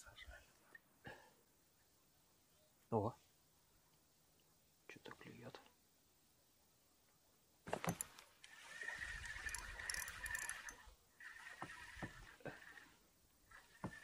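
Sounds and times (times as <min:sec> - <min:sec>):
fishing reel whirring: 0:08.5 - 0:14.0.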